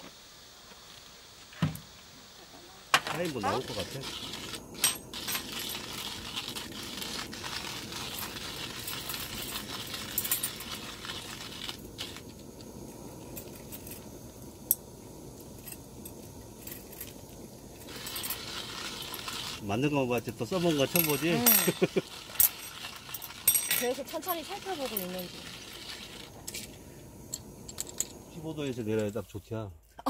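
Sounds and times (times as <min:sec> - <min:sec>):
metal cookware clinking: 0:20.8 - 0:22.6.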